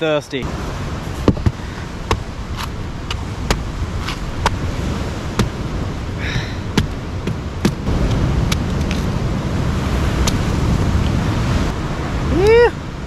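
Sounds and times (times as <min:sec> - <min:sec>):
surf rushing: 0:00.0 - 0:13.0
wind: 0:00.0 - 0:13.0
machete chopping coconut husk: 0:01.3 - 0:04.6.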